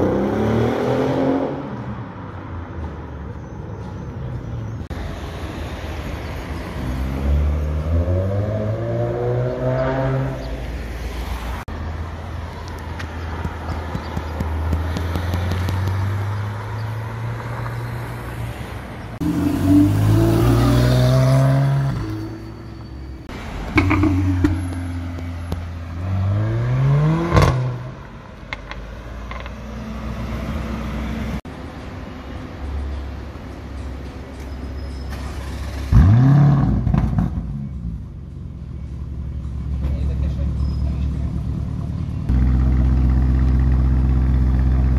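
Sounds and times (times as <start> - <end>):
sports car accelerating: 6.8 - 10.6, 19.2 - 22.3, 23.8 - 27.9
engine crackles: 12.5 - 16.8, 34.3 - 38.0, 38.9 - 44.9
car engine revving: 19.2 - 22.4
car engine idling: 38.2 - 44.9.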